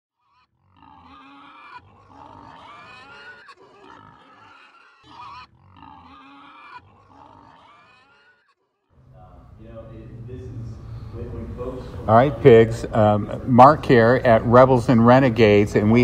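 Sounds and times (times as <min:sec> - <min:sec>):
pigs grunting and squealing: 0:00.2 - 0:08.9.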